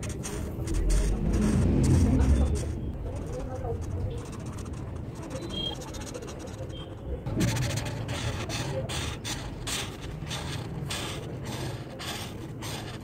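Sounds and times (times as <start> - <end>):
steady low hum: 0.0 - 8.2
marker scratching on paper: 0.0 - 13.0.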